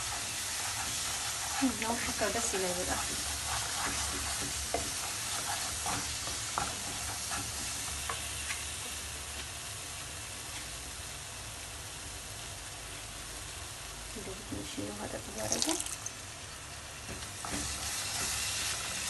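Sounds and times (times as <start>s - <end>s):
wooden spatula scraping pan: 0.0s - 8.2s
sauce sizzling in a frying pan: 0.0s - 19.0s.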